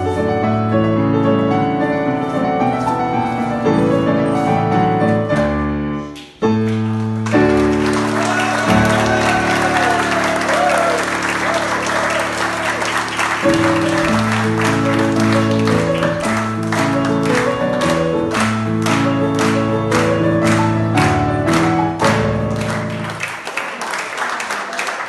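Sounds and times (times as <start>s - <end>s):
audience applause: 7.0s - 25.0s
country dance music: 7.3s - 23.2s.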